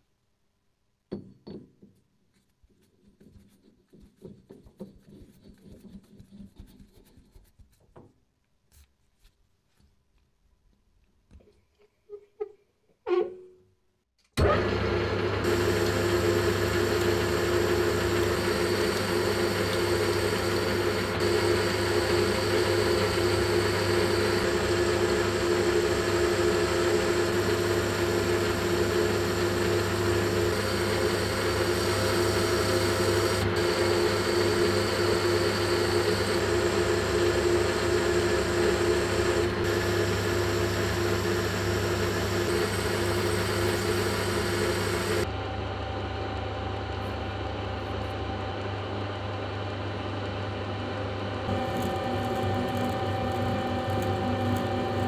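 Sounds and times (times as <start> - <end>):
metal lathe humming: 14.5 - 45.3.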